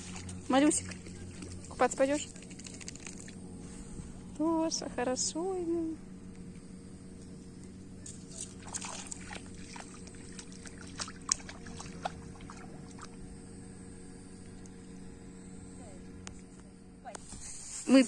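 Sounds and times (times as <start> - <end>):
splashing in shallow water: 0.0 - 3.4, 8.0 - 13.3
low hum: 0.0 - 18.0.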